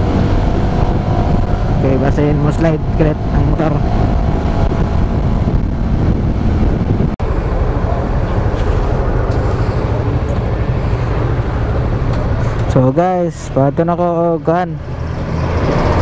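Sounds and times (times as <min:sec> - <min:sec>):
wind on microphone: 0:00.0 - 0:12.7
road noise: 0:00.0 - 0:16.0.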